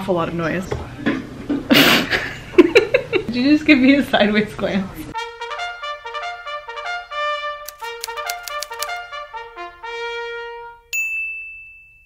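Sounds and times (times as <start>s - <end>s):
trumpet tune: 5.2s - 10.9s.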